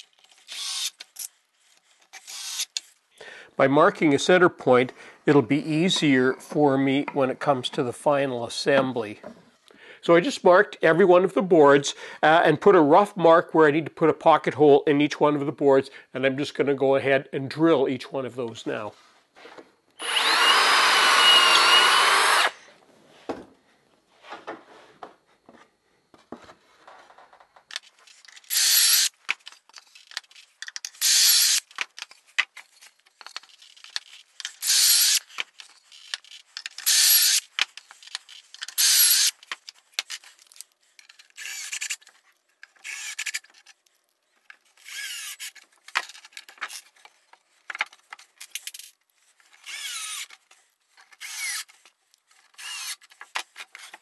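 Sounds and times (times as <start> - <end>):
cordless drill bursts: 0.5 - 1.0, 2.2 - 2.7, 20.0 - 22.6, 28.5 - 29.1, 31.0 - 31.7, 34.6 - 35.3, 36.8 - 37.5, 38.8 - 39.4, 41.4 - 42.0, 42.8 - 43.4, 44.8 - 45.5, 49.6 - 50.3, 51.2 - 51.7, 52.6 - 53.0.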